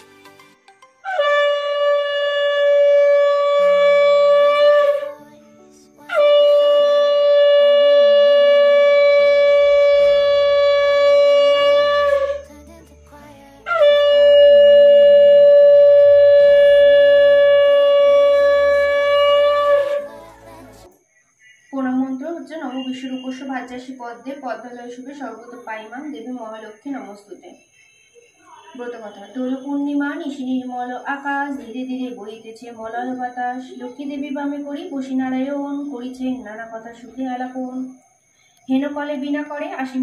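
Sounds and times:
conch shell blasts: 1.0s - 5.1s, 6.1s - 12.5s, 13.6s - 20.1s.

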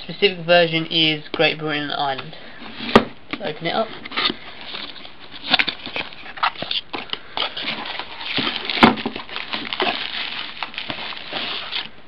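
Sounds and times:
plastic bags and bubble wrap crinkling: 3.4s - 12.0s.

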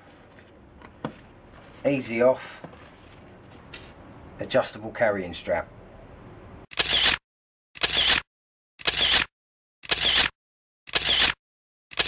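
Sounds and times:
camera shutter double click: 6.7s - 7.2s, 7.8s - 8.2s, 8.8s - 10.3s, 10.9s - 12.0s.

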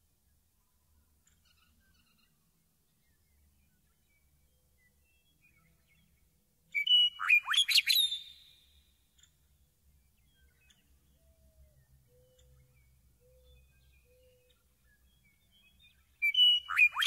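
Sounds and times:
meadowlark singing: 3.0s - 9.4s, 10.0s - 17.0s.

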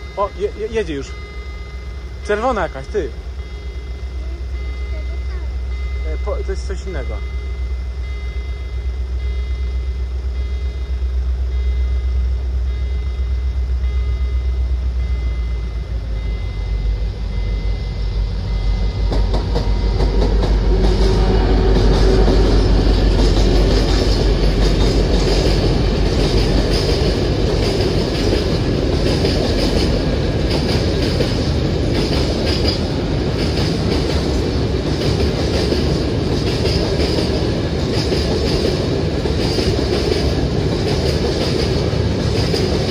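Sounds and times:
thin high tone: 0.0s - 27.3s
low steady hum: 0.0s - 35.0s
train wheels rumbling on rails: 0.0s - 42.9s
wheels clacking over rail joints: 19.1s - 42.9s.

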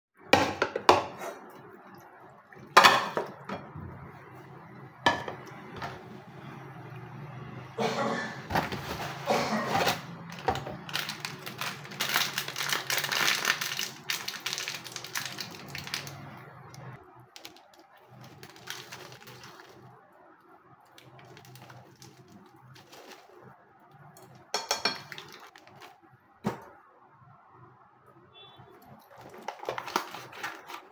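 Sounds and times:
foil sachet crinkling: 9.8s - 16.3s, 17.3s - 19.9s, 21.0s - 23.4s, 29.1s - 30.9s.

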